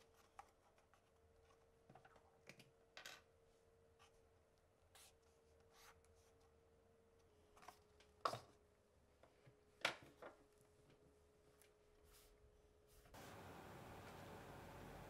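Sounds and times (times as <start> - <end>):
faint steady hum: 10.6 - 15.0.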